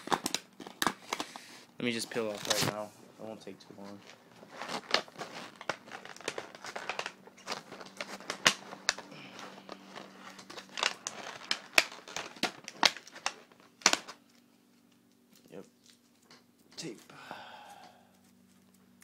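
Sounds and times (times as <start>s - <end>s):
plastic crinkling and crackling: 0.0s - 2.9s, 3.7s - 17.0s
tape peeling off plastic: 2.2s - 2.8s, 4.5s - 14.4s.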